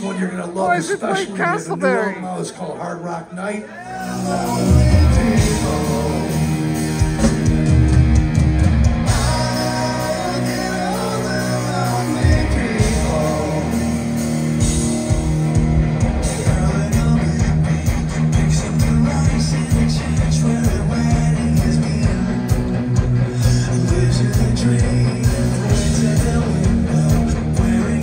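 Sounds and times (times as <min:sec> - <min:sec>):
person singing: 0:03.8 - 0:07.8, 0:09.0 - 0:15.2, 0:16.2 - 0:28.0
live rock band playing: 0:03.8 - 0:28.0.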